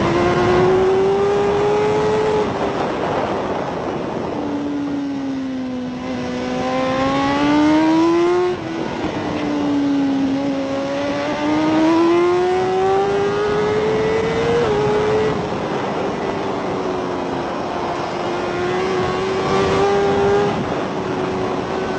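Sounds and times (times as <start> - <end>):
motorcycle engine accelerating: 0.0 - 21.9
wind rushing: 0.0 - 21.9.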